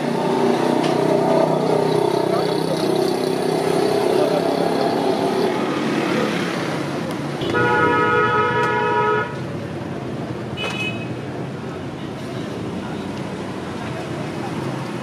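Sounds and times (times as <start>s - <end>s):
street traffic noise: 0.0s - 15.0s
vehicle horn held note: 7.4s - 9.3s.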